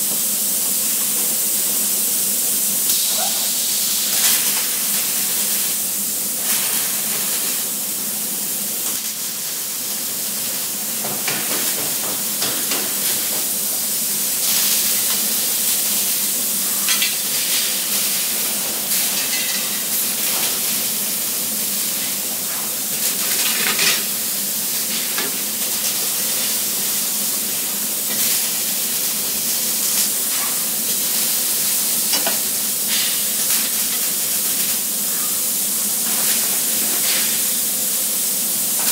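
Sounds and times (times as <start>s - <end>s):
welding arc crackling hiss: 0.0s - 38.9s.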